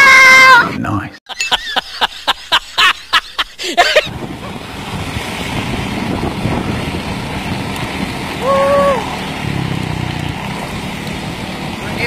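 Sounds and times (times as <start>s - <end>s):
road and motor noise: 3.9s - 12.0s
wind on microphone: 4.1s - 10.5s.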